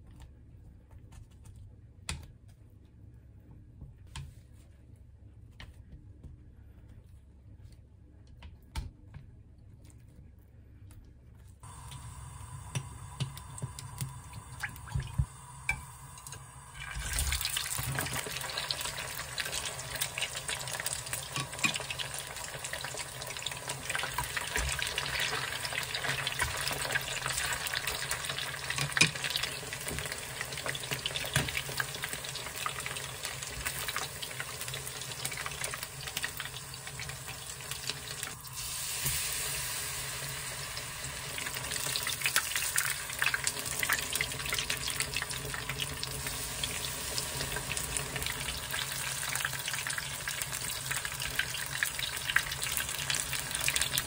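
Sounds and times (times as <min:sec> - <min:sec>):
food deep-frying in oil: 0:11.6 - 0:54.0.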